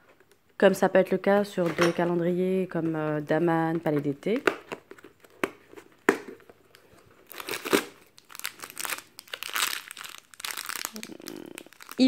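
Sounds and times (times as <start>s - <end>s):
plastic sachet crinkling: 7.2s - 12.0s.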